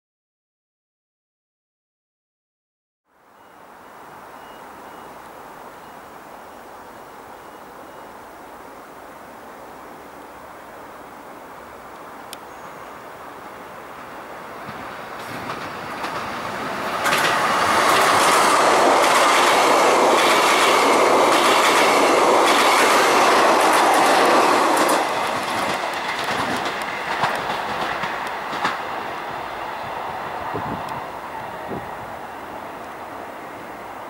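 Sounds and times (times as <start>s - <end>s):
train wheels rushing on rails: 13.2s - 34.0s
clickety-clack over rail joints: 14.6s - 29.4s.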